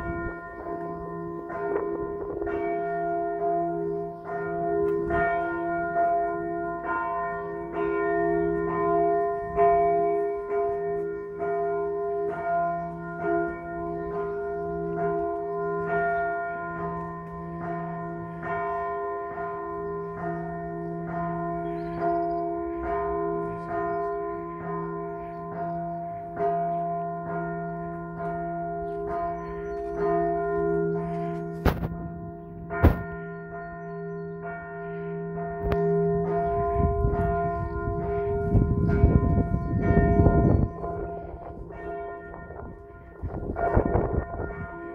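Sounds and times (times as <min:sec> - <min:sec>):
church bells pealing: 0:00.0 - 0:44.9
sharp knocks: 0:32.8 - 0:33.2.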